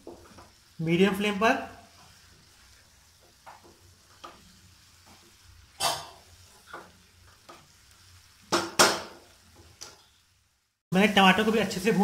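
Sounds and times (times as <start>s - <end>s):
wooden spatula scraping pan: 0.0s - 10.2s
faint sizzle: 0.0s - 12.0s.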